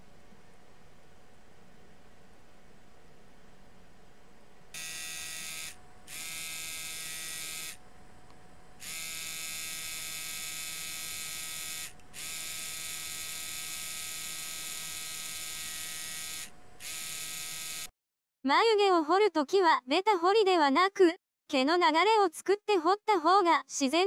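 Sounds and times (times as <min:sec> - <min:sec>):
tattoo machine electric buzz: 0:04.8 - 0:07.8, 0:08.8 - 0:17.9.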